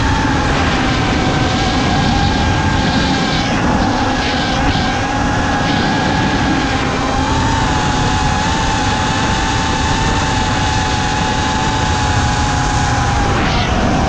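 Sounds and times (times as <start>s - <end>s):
drone motors whining: 0.0s - 14.0s
rushing noise: 0.0s - 14.0s.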